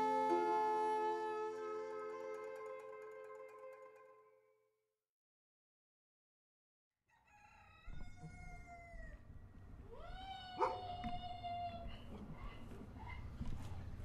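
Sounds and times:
rooster crowing: 7.1s - 9.2s.

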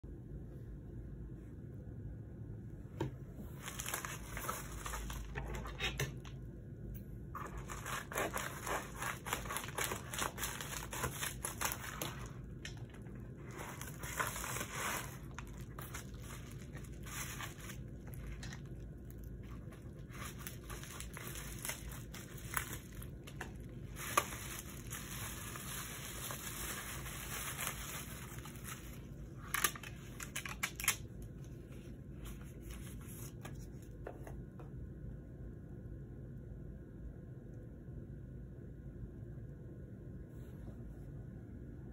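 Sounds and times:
bubble wrap crinkling: 3.5s - 5.6s, 7.4s - 33.6s
plastic mailer tearing: 7.4s - 31.0s.

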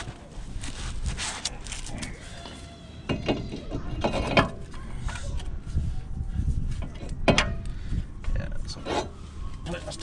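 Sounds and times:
metal knocks and clunks: 6.8s - 7.6s.

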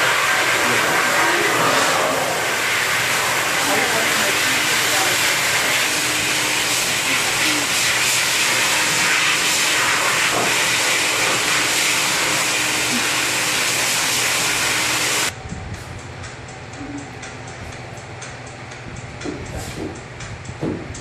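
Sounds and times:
pet dryer blowing air: 0.0s - 15.4s.

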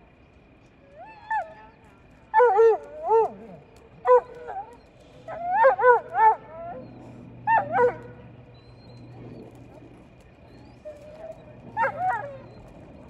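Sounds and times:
low aircraft engine drone: 0.0s - 13.0s
dog yipping and whining: 4.1s - 9.5s, 10.5s - 13.0s.

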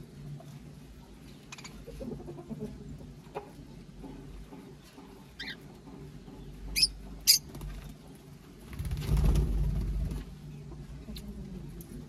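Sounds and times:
parrots chirping: 1.5s - 2.0s, 5.4s - 5.7s, 6.7s - 7.5s.

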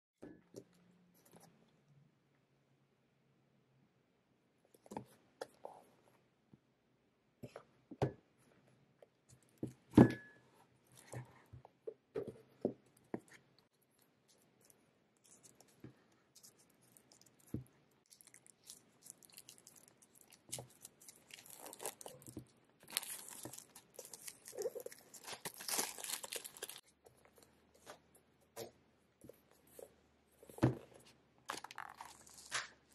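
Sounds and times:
shrink wrap crinkling and tearing: 16.4s - 27.4s, 31.5s - 32.9s.

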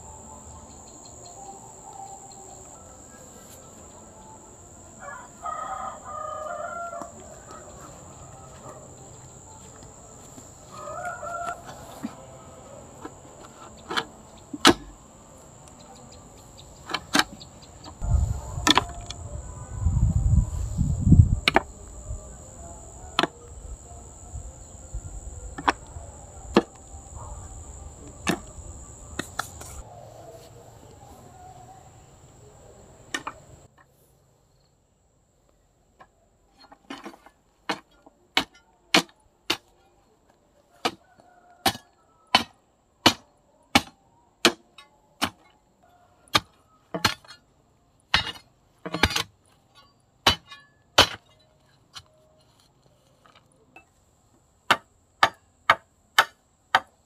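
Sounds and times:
steady high-pitched tone: 0.0s - 5.4s.

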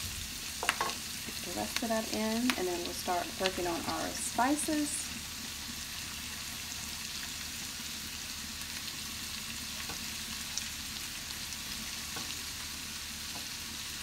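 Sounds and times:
vegetables sizzling in a frying pan: 0.0s - 14.0s.

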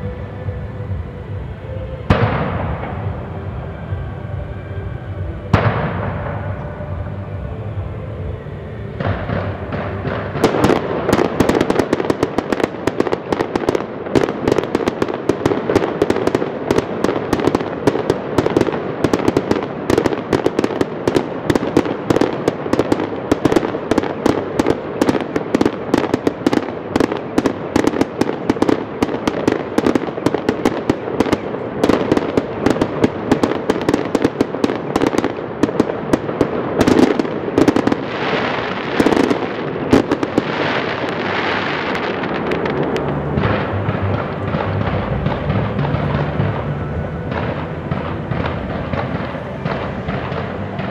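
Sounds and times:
fireworks bangs and crackles: 0.0s - 50.9s.

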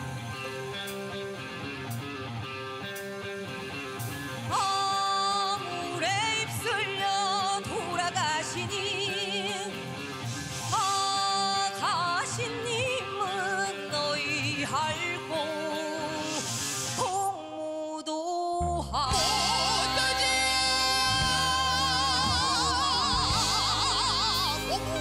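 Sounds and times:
backing music: 0.0s - 17.0s, 19.0s - 25.0s
woman singing with vibrato: 4.5s - 10.0s, 10.7s - 25.0s.

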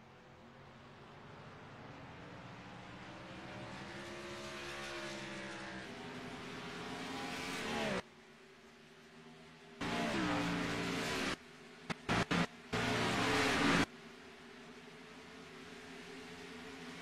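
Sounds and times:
race car engine running: 9.8s - 13.9s.

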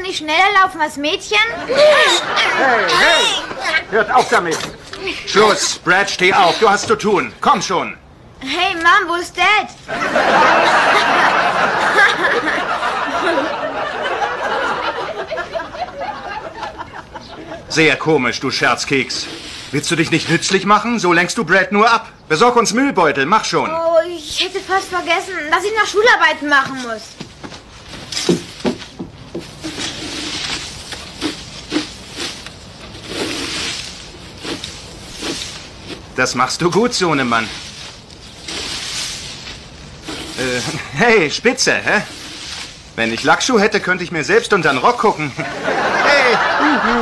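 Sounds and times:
studio audience laughing: 1.5s - 4.1s, 9.9s - 17.7s, 45.2s - 47.0s
yard tool scraping wooden deck: 1.8s - 7.3s, 18.4s - 20.8s, 24.0s - 45.1s
rustling: 8.7s - 21.4s, 22.5s - 46.3s.

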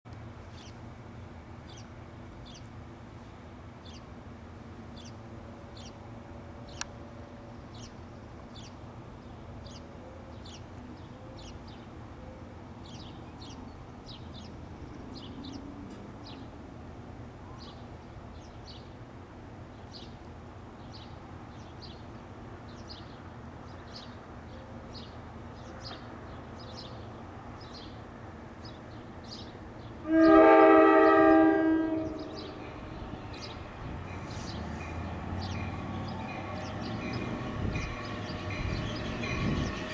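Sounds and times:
locomotive horn: 30.0s - 32.7s.

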